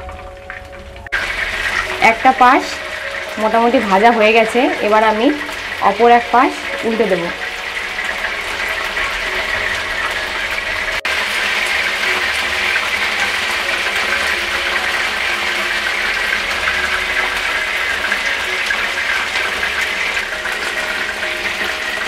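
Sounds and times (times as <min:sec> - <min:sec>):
fish sizzling in hot oil: 0:00.0 - 0:22.0.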